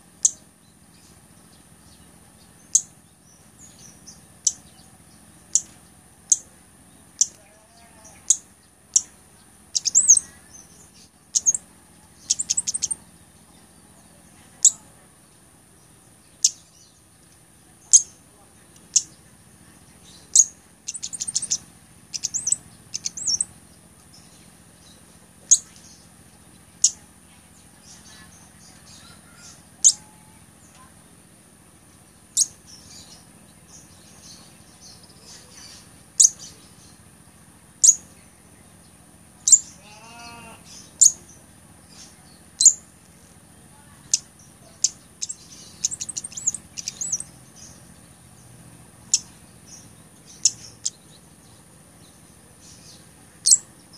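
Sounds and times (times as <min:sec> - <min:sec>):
bird chip calls: 0:00.2 - 0:00.4, 0:01.9 - 0:03.0, 0:03.6 - 0:04.9, 0:07.1 - 0:14.9, 0:16.2 - 0:17.0, 0:17.8 - 0:18.2, 0:18.8 - 0:19.2, 0:20.0 - 0:23.5, 0:24.1 - 0:26.0, 0:26.6 - 0:27.1, 0:27.8 - 0:30.9, 0:32.3 - 0:37.0, 0:37.8 - 0:38.1, 0:39.4 - 0:42.9, 0:44.1 - 0:47.9, 0:49.0 - 0:53.9.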